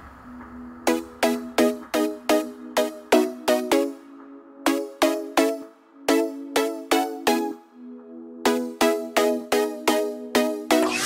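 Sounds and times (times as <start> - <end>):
electronic music with plucked notes: 0.8 - 11.0.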